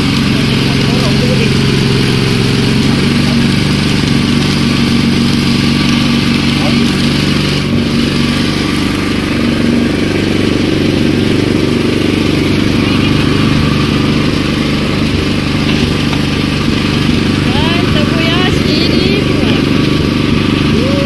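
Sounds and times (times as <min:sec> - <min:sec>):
small petrol engine running: 0:00.0 - 0:21.0.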